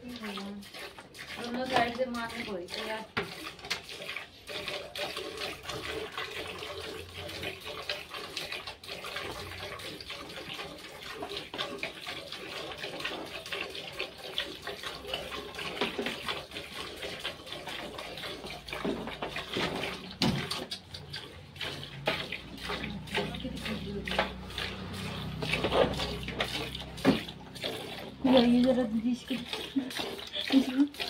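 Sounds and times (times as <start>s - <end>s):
milk squirting into steel bucket: 0.0s - 31.0s.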